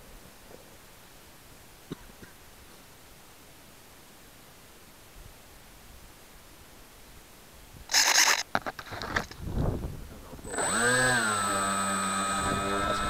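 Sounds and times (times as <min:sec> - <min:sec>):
electric motor and propeller running: 0:07.9 - 0:08.4, 0:10.4 - 0:13.0.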